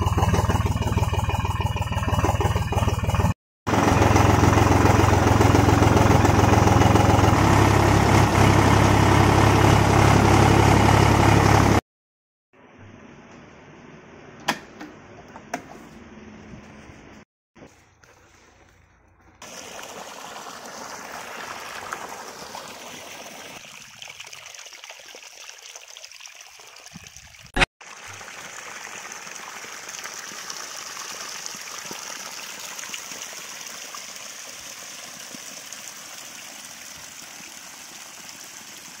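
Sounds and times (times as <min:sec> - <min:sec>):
water flowing and splashing: 0:19.3 - 0:39.0.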